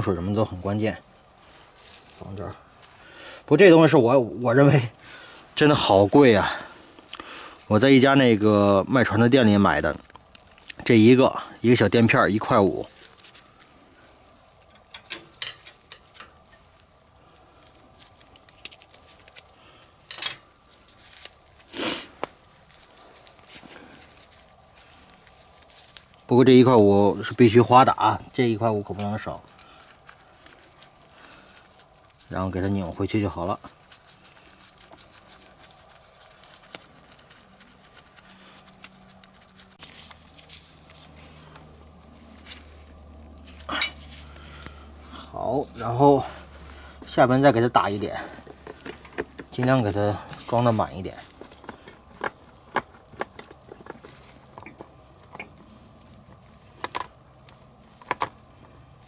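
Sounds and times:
steady low hum: 0.0 - 59.0
plastic packaging crinkle: 9.6 - 10.9, 12.4 - 27.6, 28.3 - 45.9
packaging clicks and rustles: 15.7 - 26.4, 28.9 - 44.8, 47.8 - 58.9.

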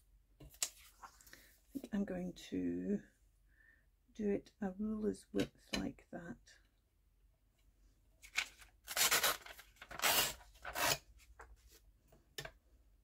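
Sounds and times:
paper tearing along a ruler: 8.9 - 11.0.

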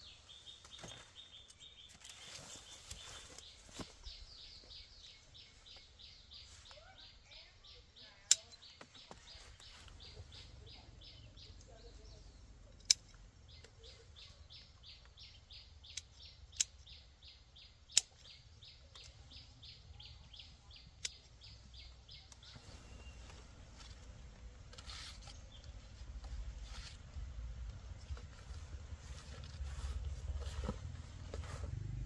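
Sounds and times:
sharp clicks: 17.9 - 19.2
noisy rustle: 22.5 - 32.0.

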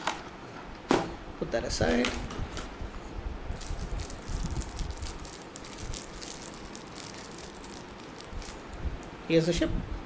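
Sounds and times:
plastic wrapping crinkling: 3.6 - 8.7.

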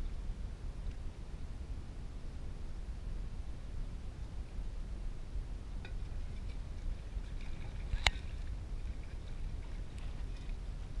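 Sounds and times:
wind rumble on microphone: 0.0 - 11.0
water sloshing and splashing: 6.0 - 11.0.

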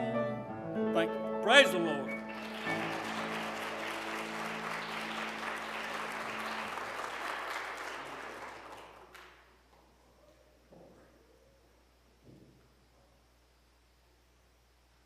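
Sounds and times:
congregation applauding: 2.2 - 9.7.

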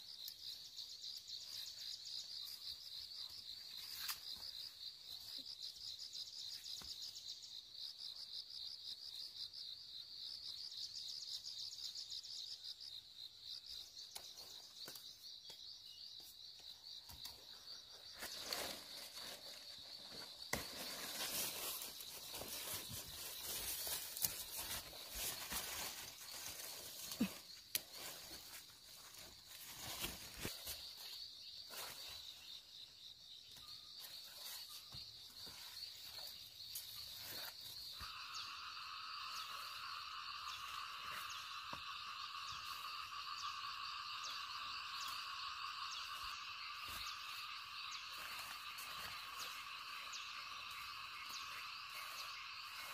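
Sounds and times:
high chirring of insects: 0.0 - 52.9
lower insect chirring chorus: 0.0 - 52.9
leaves and vines rustling: 17.8 - 32.6, 34.0 - 38.2, 44.4 - 52.9.

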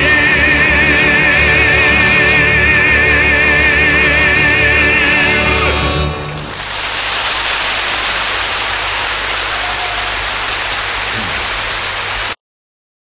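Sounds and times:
steady rushing hiss: 6.4 - 12.4.

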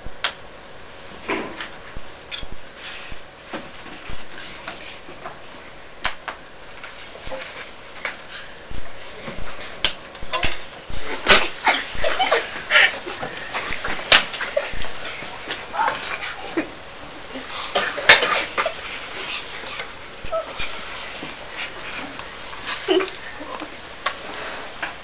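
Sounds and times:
children making animal noises: 14.6 - 17.6, 19.1 - 21.0.

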